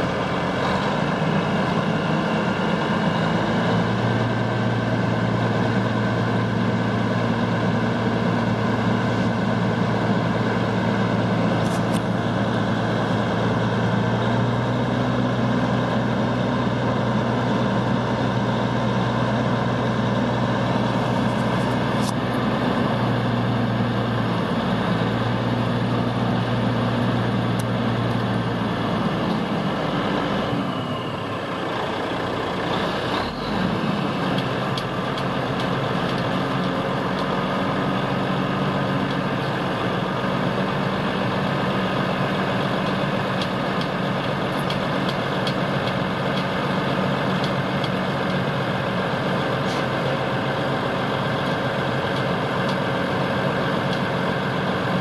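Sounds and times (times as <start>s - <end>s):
diesel truck engine running: 0.0s - 55.0s.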